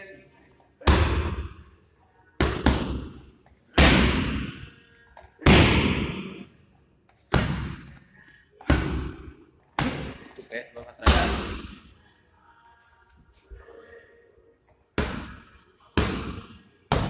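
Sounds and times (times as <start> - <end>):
strikes smacking pads echoing: 0.8 - 1.6, 2.4 - 4.7, 5.4 - 6.5, 15.0 - 17.0.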